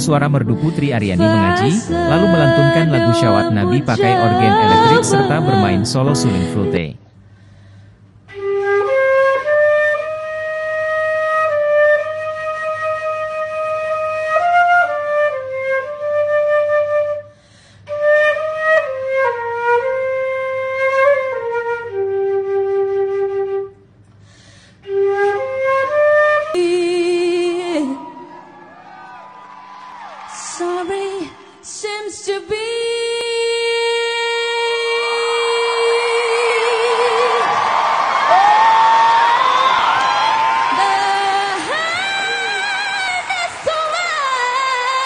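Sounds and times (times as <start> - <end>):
flute playing slow melody: 0.0 - 6.8, 8.3 - 17.3, 17.9 - 23.9, 24.8 - 26.8
woman singing with vibrato: 0.6 - 6.8, 26.5 - 28.5, 30.3 - 37.7, 39.1 - 45.0.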